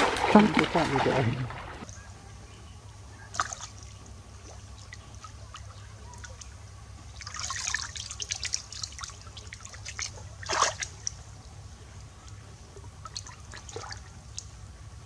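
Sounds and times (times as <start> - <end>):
water splashing and dripping: 0.0 - 1.8, 7.2 - 11.2.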